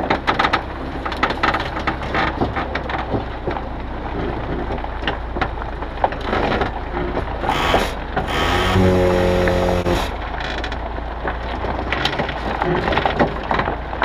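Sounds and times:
gravel crackling and crunching: 0.0s - 14.0s
truck engine rumble: 0.0s - 14.0s.

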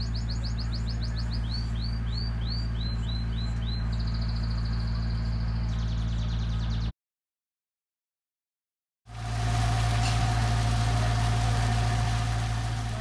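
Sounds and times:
birds singing: 0.0s - 6.9s
steady low hum: 9.1s - 13.0s.

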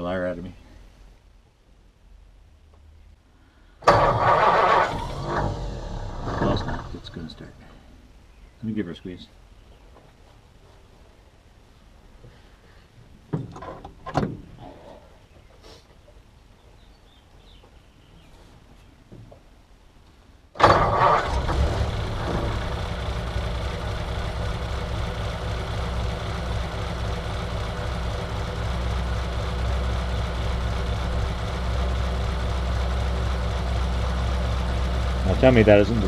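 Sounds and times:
car engine starting and idling: 3.8s - 8.0s, 20.5s - 36.0s.

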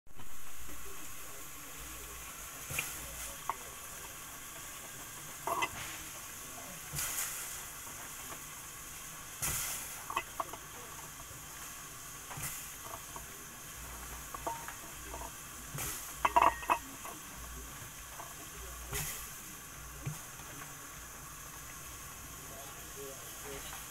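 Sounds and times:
faint steady hiss: 0.1s - 23.9s
clinks against metal pot: 5.4s - 5.8s, 14.2s - 17.3s.

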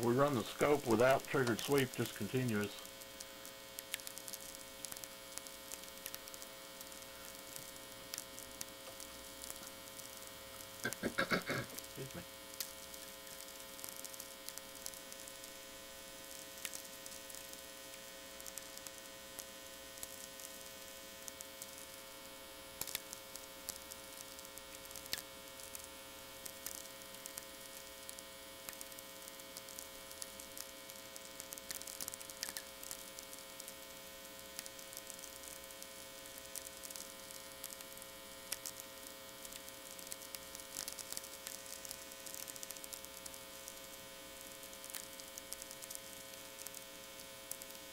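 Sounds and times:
radio static crackles and pops: 0.0s - 47.9s
steady mains hum: 0.0s - 47.9s.

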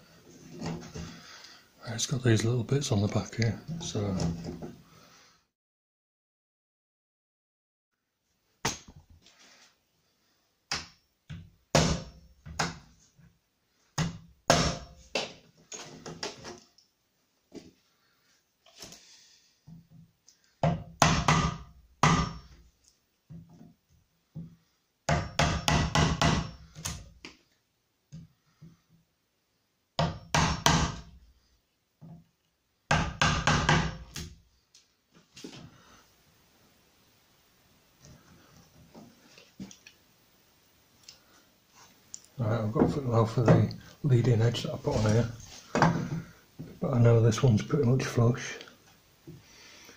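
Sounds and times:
wood chisel being struck: 14.0s - 15.3s, 20.6s - 22.4s, 25.1s - 27.0s, 30.0s - 31.1s, 32.9s - 34.2s
hammer knocking on wood: 20.6s - 22.4s, 25.1s - 26.6s, 30.0s - 31.1s, 32.9s - 34.0s.

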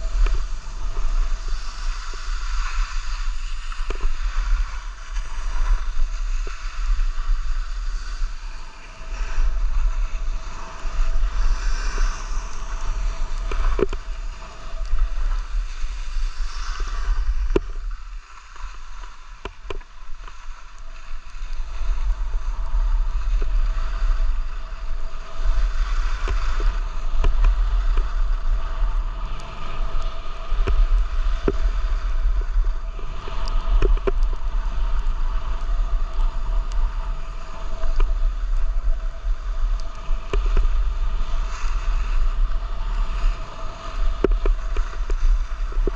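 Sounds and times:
skis scraping on packed snow: 0.0s - 45.9s
wind buffeting microphone: 0.0s - 45.9s.

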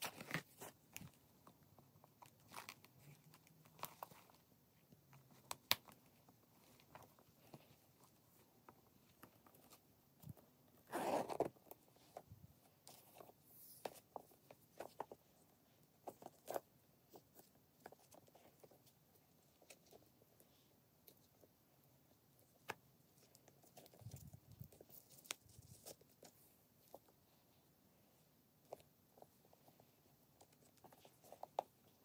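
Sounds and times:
metal zipper zip: 10.8s - 11.5s.

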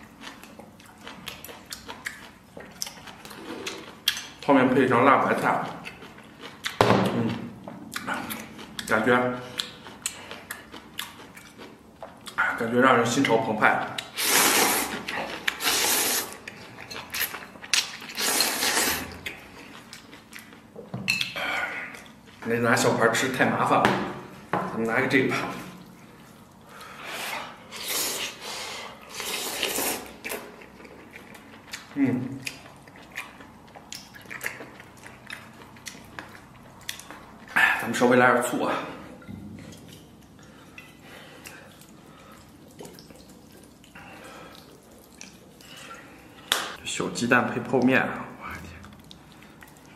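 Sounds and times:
chewing with wet mouth clicks: 0.0s - 4.5s, 5.2s - 6.8s, 7.8s - 14.2s, 14.9s - 22.4s, 29.0s - 37.6s, 39.2s - 46.8s, 48.6s - 49.9s
person slurping noodles: 14.2s - 16.4s, 18.1s - 19.2s, 27.0s - 30.3s.

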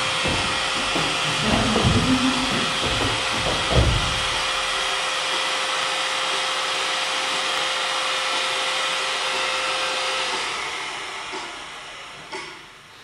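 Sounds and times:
machine hiss and hum: 0.0s - 13.0s
dull low thuds: 0.2s - 4.7s.

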